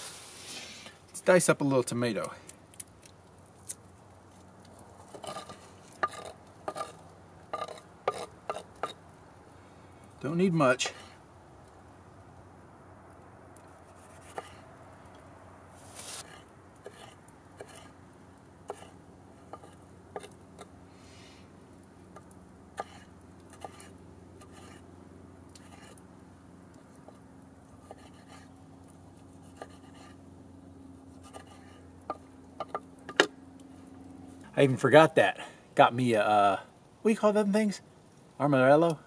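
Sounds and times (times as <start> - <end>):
knife scraping: 5.1 - 9.0, 13.8 - 14.6, 15.8 - 18.0, 18.7 - 20.4, 22.8 - 24.9, 25.6 - 26.0, 27.8 - 30.2, 31.1 - 32.8.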